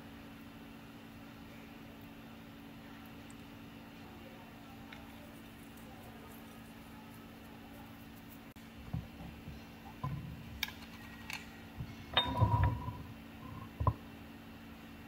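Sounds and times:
faint steady hum: 0.0 - 15.0
glass jar clinking: 12.1 - 13.0.

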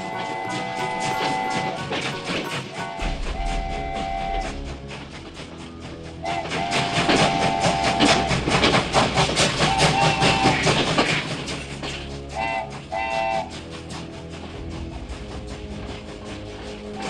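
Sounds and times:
held musical tones: 0.0 - 8.5
train wheels clattering on rails: 0.0 - 17.0.

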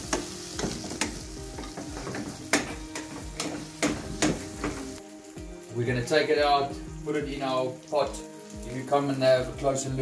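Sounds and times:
onions sizzling in pan: 0.0 - 10.0.

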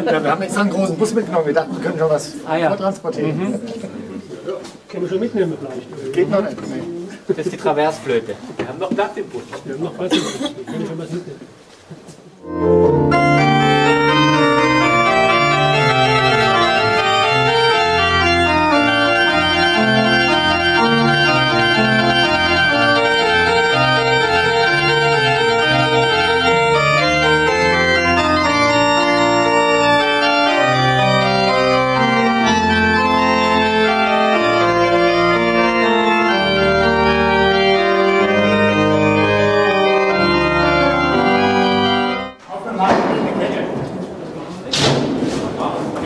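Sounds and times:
pipe organ chords: 12.4 - 42.4.

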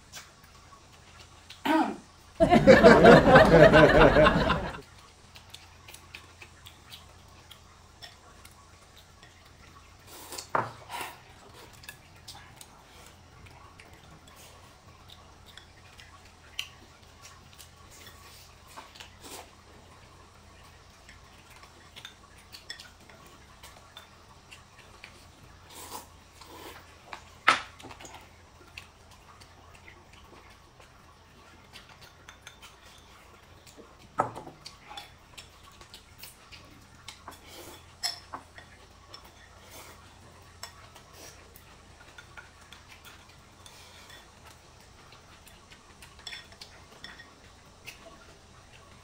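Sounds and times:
chopsticks and spoon clinking bowls: 21.0 - 24.2, 31.7 - 39.6, 41.6 - 48.3.

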